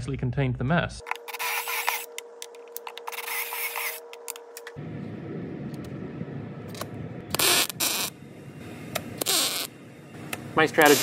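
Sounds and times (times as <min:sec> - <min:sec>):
outdoor background noise: 0:01.0 - 0:11.0.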